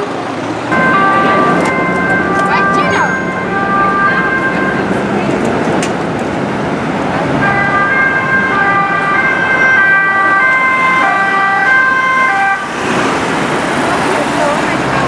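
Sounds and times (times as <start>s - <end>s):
traffic noise: 0.0s - 15.0s
two-tone police siren: 0.7s - 5.0s, 7.4s - 12.7s.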